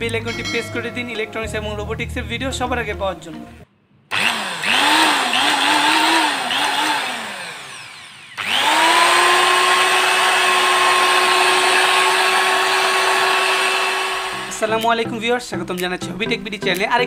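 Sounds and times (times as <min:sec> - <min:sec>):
electric drill motor whine: 0:04.1 - 0:14.6.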